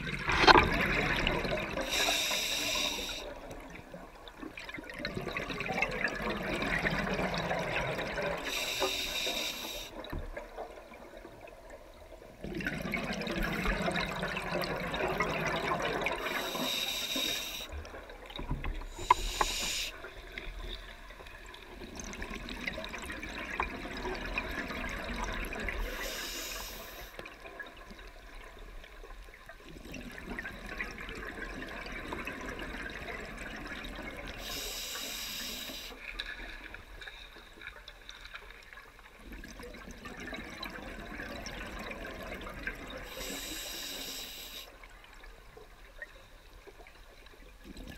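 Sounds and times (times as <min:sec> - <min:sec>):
exhale bubbling gurgle: 0:00.0 - 0:37.0, 0:39.1 - 0:47.9
regulator inhale hiss: 0:01.8 - 0:03.4, 0:08.4 - 0:10.0, 0:16.2 - 0:17.8, 0:18.9 - 0:20.1, 0:25.8 - 0:27.2, 0:34.4 - 0:36.0, 0:43.1 - 0:44.7.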